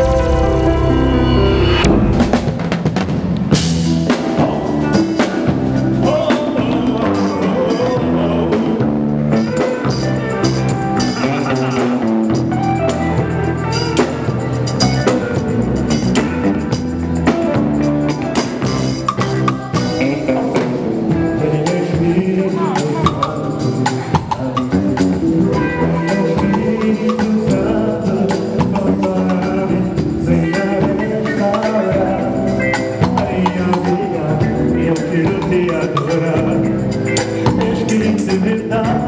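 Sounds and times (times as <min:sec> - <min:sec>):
sustained chords: 0:00.0 - 0:02.7
bass line: 0:00.0 - 0:39.0
drum kit beat: 0:00.0 - 0:39.0.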